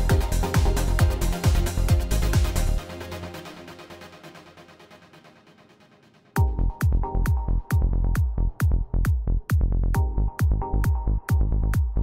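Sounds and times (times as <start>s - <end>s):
heavy kick-drum beat: 0.0s - 2.8s, 6.4s - 12.0s
electronic music: 0.0s - 12.0s.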